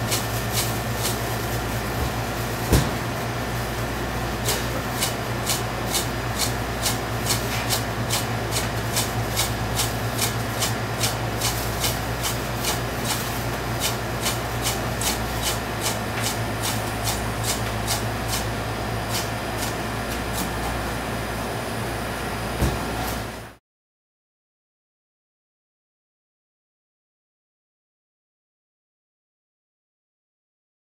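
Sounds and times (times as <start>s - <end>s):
knife chopping on cutting board: 2.7s - 3.0s.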